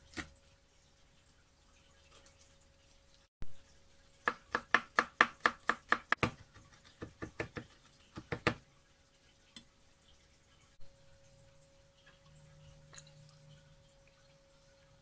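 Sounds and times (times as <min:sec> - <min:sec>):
knife chopping on wooden board: 0:04.3 - 0:08.6.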